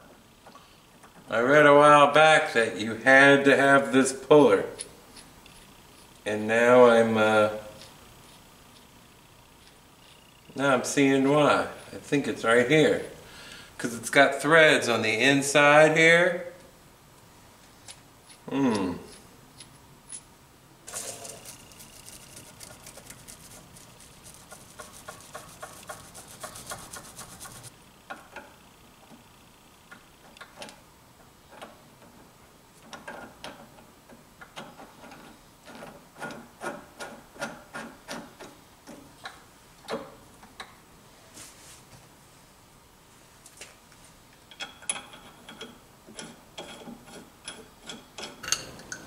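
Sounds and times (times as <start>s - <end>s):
fast run of fine clicks: 20.9s - 27.7s
metal tool clicking and scraping: 44.5s - 49.0s.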